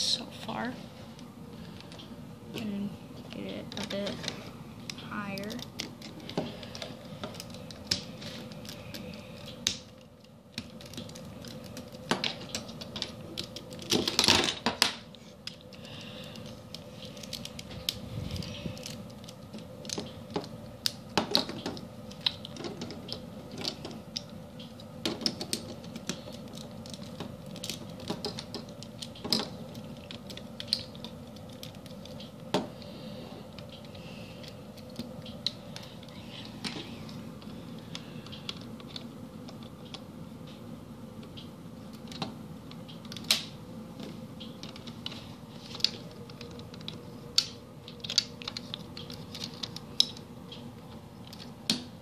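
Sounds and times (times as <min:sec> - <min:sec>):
faint steady hum: 0:00.0 - 0:52.0
plastic bricks clicking and clattering: 0:10.6 - 0:15.7, 0:25.0 - 0:32.6.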